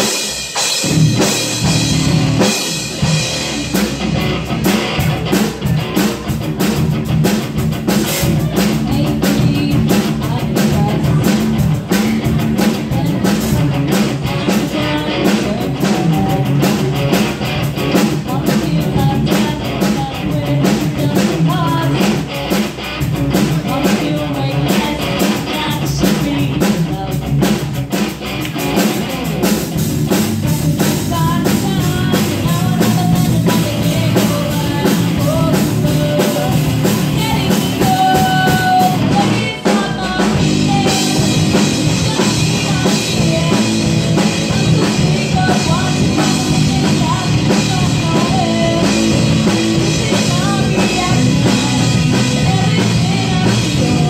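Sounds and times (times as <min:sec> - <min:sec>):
bass guitar: 0:00.0 - 0:54.0
drum kit: 0:00.0 - 0:54.0
electric guitar: 0:00.0 - 0:54.0
woman singing into a microphone: 0:08.5 - 0:17.0, 0:17.9 - 0:22.3, 0:23.4 - 0:27.4, 0:30.3 - 0:54.0.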